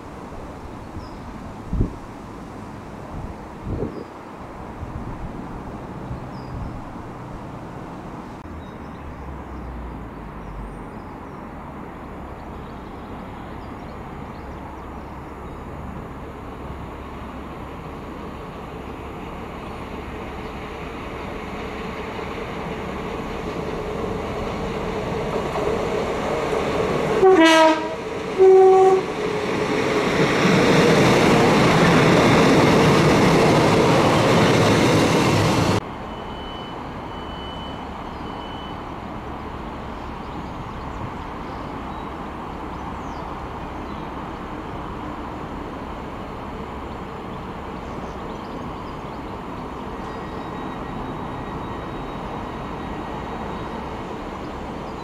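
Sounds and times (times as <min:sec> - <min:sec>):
hum of standing trains: 0:00.0 - 0:55.0
train running past: 0:11.7 - 0:55.0
train horn blasts: 0:27.2 - 0:29.2
short high beeps: 0:36.1 - 0:38.8.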